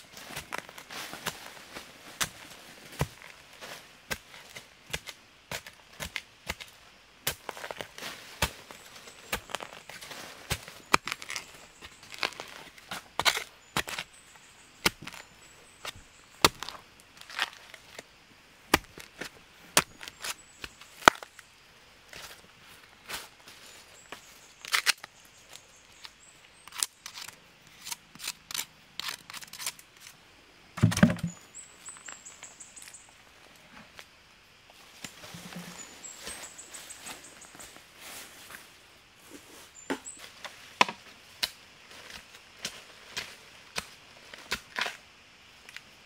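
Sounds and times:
pole jabbing into soil and leaves: 4.1s - 18.0s, 18.7s - 21.4s, 24.1s - 30.1s.

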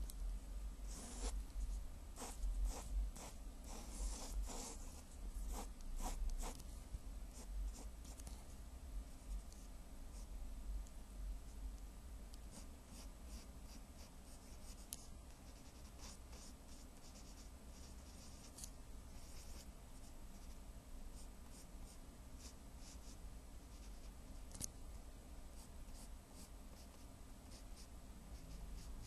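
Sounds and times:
pencil scratching drawing strokes: 0.9s - 6.6s.

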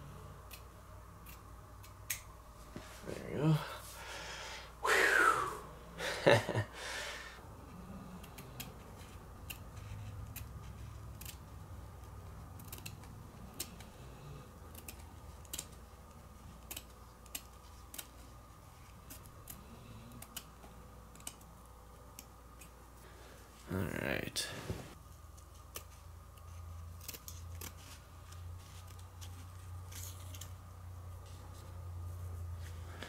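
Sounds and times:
scissors snipping fabric: 9.4s - 11.5s, 12.5s - 13.9s.

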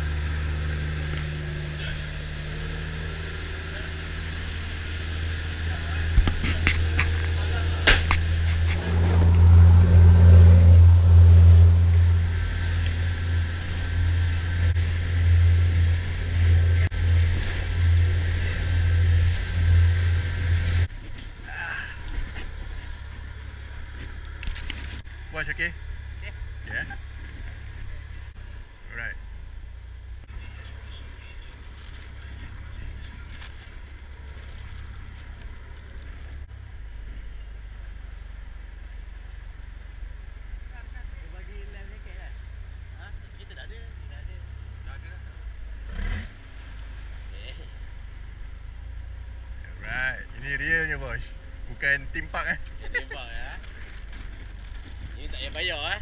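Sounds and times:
water rushing along hull: 0.0s - 28.4s
boat engines low drone: 0.0s - 56.0s
wind: 0.0s - 56.0s.

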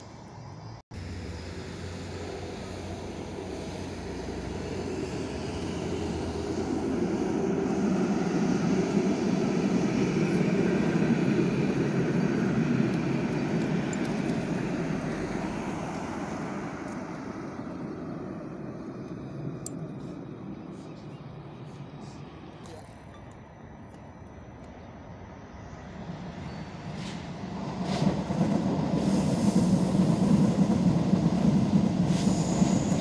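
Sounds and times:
tram passing: 0.0s - 33.0s.

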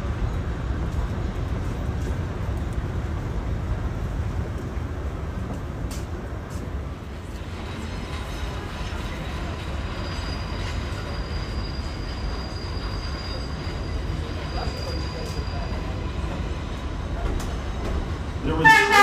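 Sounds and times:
train wheels rumbling on rail: 0.0s - 19.0s
high wheel squeal: 7.6s - 16.5s.

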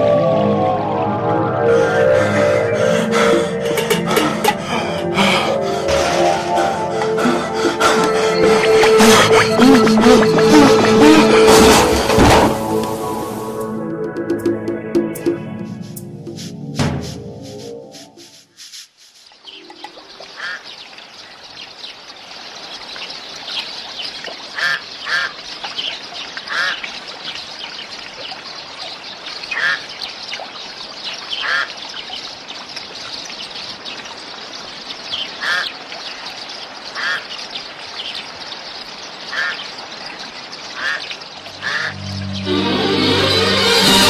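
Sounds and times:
birds calling: 19.4s - 22.1s, 22.8s - 27.9s, 31.0s - 42.6s.

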